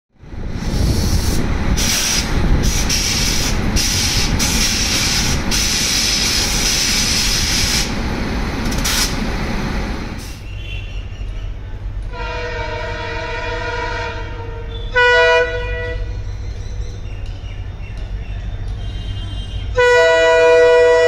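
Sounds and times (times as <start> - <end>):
loud air hissing: 0.5 - 8.0, 8.7 - 10.5.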